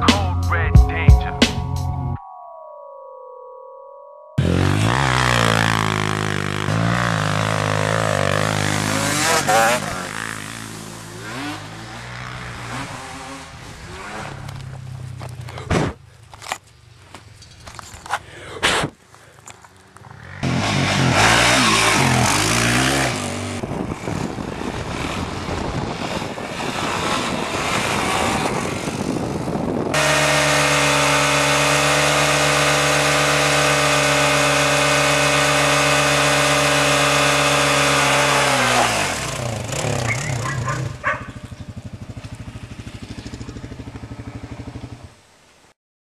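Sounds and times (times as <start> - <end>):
dirt bike engine revving: 4.4 - 15.7, 19.7 - 45.2
rear tyre spinning: 4.4 - 18.2, 19.0 - 45.1.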